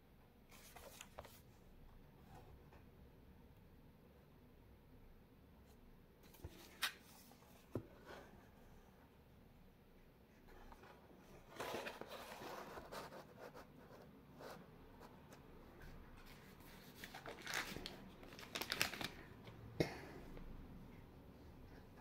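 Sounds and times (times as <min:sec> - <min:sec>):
cardboard rustling and scraping: 0:10.5 - 0:13.5.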